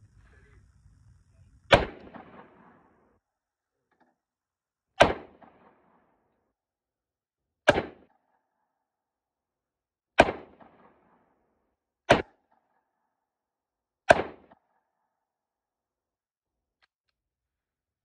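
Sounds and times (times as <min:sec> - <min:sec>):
revolver shots with echo: 0:01.7 - 0:02.9, 0:05.0 - 0:05.8.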